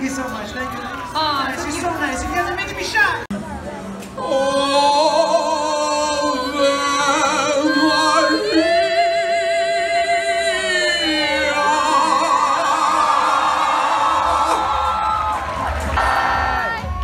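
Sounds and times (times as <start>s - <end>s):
person singing with vibrato: 4.2s - 14.7s.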